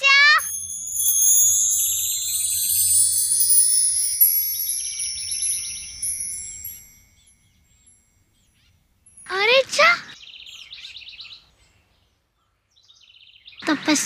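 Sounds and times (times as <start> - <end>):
high shimmering chime: 0.0 - 10.7.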